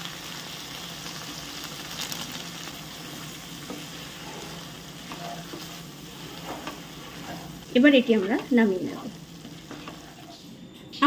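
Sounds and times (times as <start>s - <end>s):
curry sizzling in wok: 0.0s - 11.0s
wooden spatula scraping: 3.0s - 10.6s.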